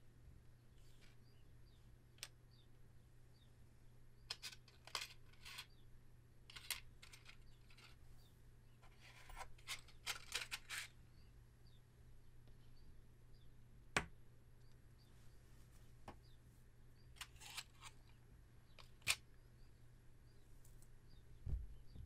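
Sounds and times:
low steady hum: 0.0s - 22.0s
soft clicks and crackles of handling: 20.5s - 21.0s.

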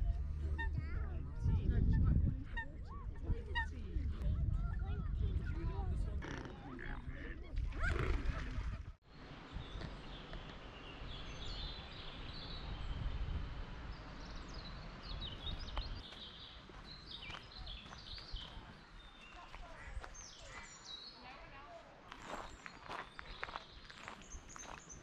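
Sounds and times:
songbirds chirping and singing: 9.1s - 21.5s, 22.1s - 25.0s.

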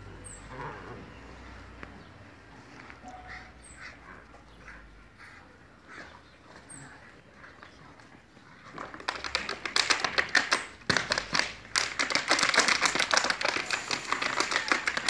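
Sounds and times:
plastic bottle crinkling: 8.6s - 15.0s.

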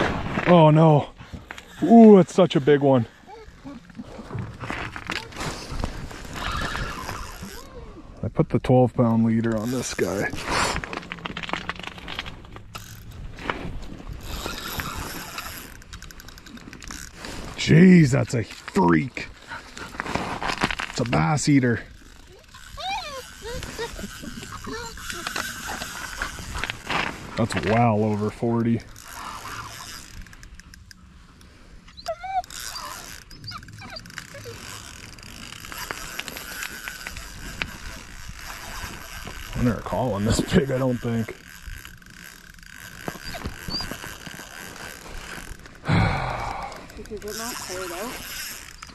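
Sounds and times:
dog whining: 3.3s - 3.9s, 22.3s - 25.9s, 32.0s - 36.1s, 43.1s - 44.2s
fishing reel clicking and ratcheting: 5.9s - 7.7s, 9.1s - 10.4s, 11.3s - 13.2s, 14.2s - 19.8s, 20.6s - 48.9s.

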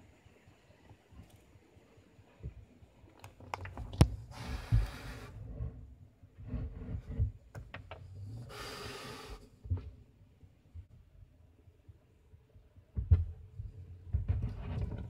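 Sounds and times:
hiss-like noise: 4.2s - 5.5s, 8.2s - 9.8s.

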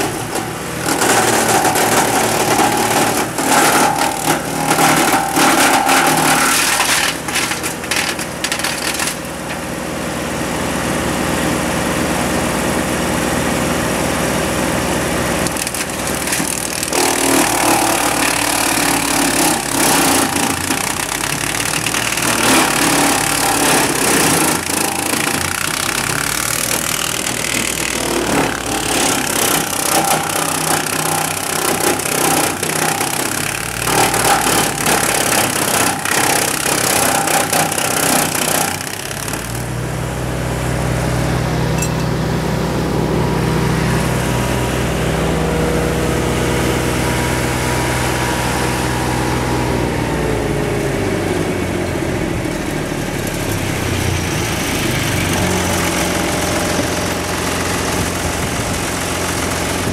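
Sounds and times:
wood crushing and splintering: 0.0s - 10.1s, 15.3s - 40.3s
wood chipper engine running: 0.0s - 59.9s.

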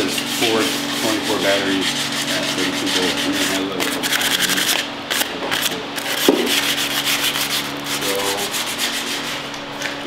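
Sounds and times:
sanding steel tubing: 0.1s - 4.7s, 6.5s - 9.4s.

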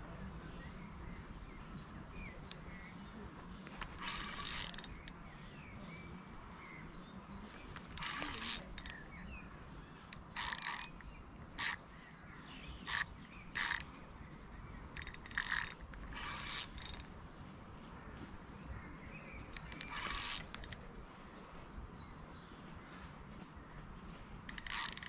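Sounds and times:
fishing reel ratchet clicking: 3.6s - 5.2s, 7.5s - 9.0s, 10.1s - 11.8s, 12.8s - 13.9s, 14.9s - 17.1s, 19.5s - 20.8s, 24.5s - 25.0s.

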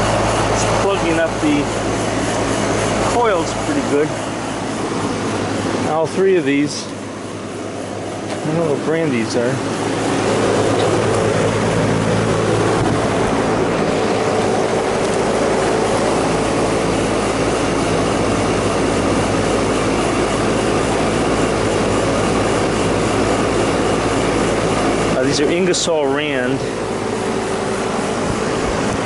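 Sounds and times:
air conditioning units humming: 0.0s - 29.0s.

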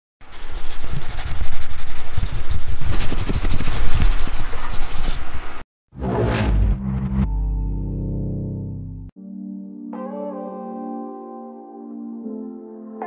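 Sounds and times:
wind and road noise on microphone: 0.2s - 5.6s.

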